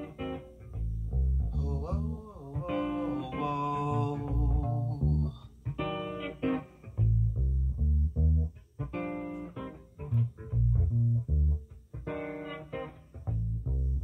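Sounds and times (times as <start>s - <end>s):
plucked guitar notes: 0.0s - 14.0s
bass line: 0.7s - 5.4s, 7.0s - 8.6s, 10.1s - 11.7s, 13.3s - 14.0s.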